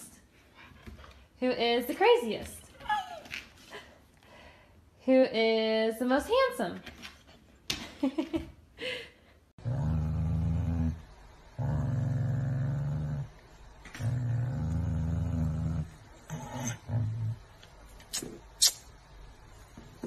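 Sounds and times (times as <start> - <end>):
dog growling low: 9.6 - 17.6.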